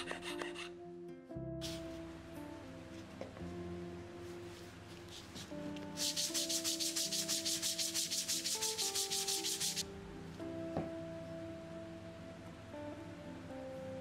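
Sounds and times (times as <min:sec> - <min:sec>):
hand sanding wood strokes: 0:05.1 - 0:09.8.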